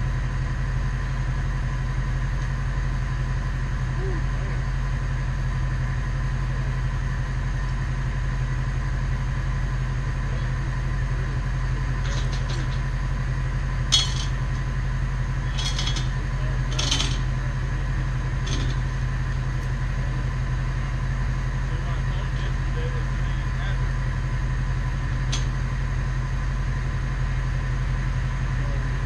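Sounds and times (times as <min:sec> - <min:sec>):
truck engine idling: 0:00.0 - 0:29.0
metal clinks and clanks: 0:12.0 - 0:12.8, 0:13.9 - 0:14.4, 0:15.4 - 0:17.4, 0:18.4 - 0:18.9.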